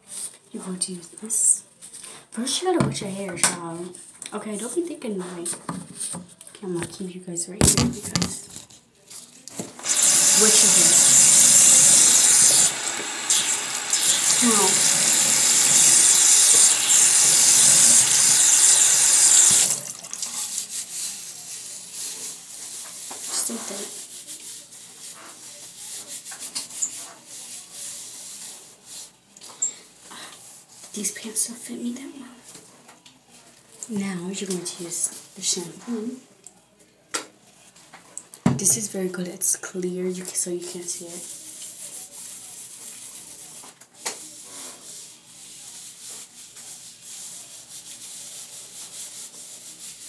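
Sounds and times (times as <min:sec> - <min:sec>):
hands scrubbing hair: 0:09.9 - 0:29.0.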